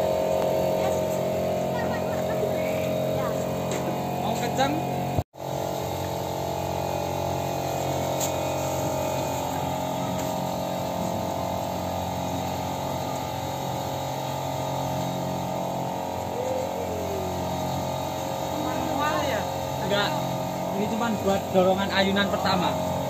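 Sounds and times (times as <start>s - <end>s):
electric drive motor humming: 0.0s - 23.0s.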